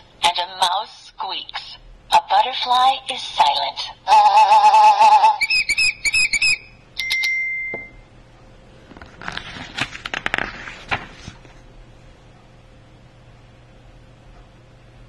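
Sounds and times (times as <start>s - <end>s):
book pages rustling: 8.8s - 11.7s.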